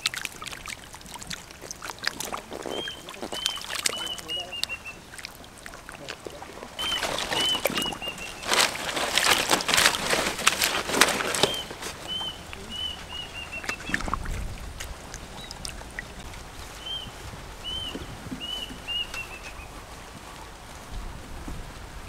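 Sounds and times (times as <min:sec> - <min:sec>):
fish splashing in water: 0:00.0 - 0:20.7
bird chirping: 0:02.4 - 0:05.2, 0:06.6 - 0:08.8, 0:11.2 - 0:14.3, 0:15.2 - 0:19.8.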